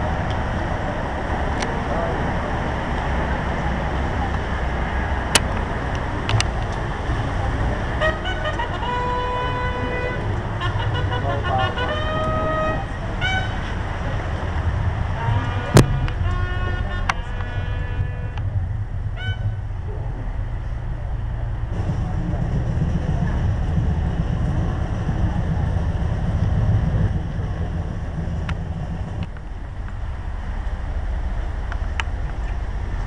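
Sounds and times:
steady low rumble: 0.0s - 33.0s
brass horns sounding a call: 6.4s - 20.0s.

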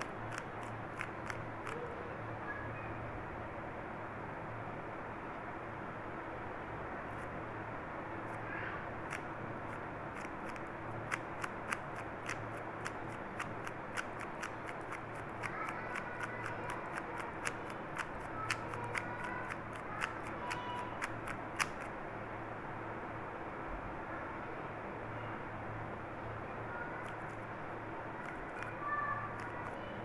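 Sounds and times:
puzzle cube layers clicking: 0.0s - 1.8s, 10.2s - 21.9s.

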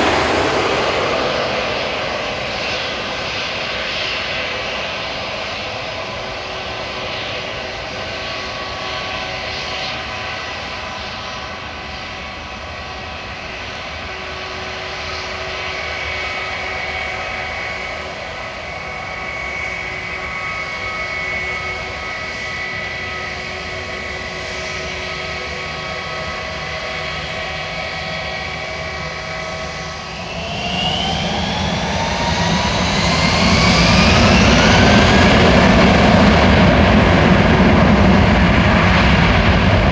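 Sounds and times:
low rumble: 0.0s - 4.0s
jet engines spooling up: 0.0s - 39.9s
jet engines whining: 0.0s - 39.9s.

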